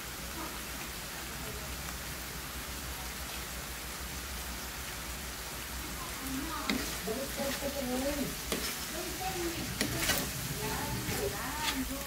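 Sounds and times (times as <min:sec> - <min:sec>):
pork sizzling in frying pan: 0:00.0 - 0:12.0.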